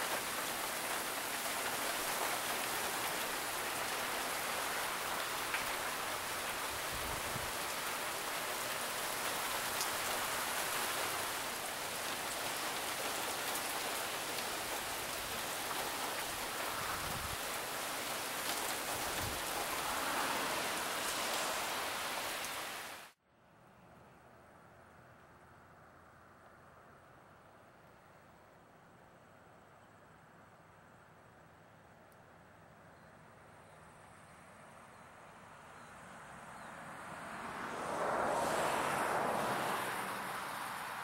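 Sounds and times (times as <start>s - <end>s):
rain splashing on surfaces: 0.0s - 23.2s, 37.5s - 41.0s.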